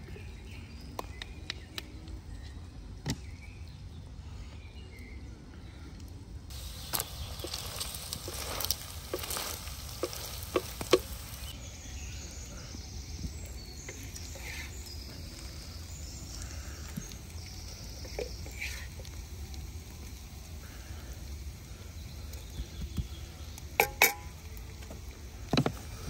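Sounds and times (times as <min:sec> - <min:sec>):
food sizzling in a frying pan: 0:06.5 - 0:11.8, 0:13.0 - 0:26.0.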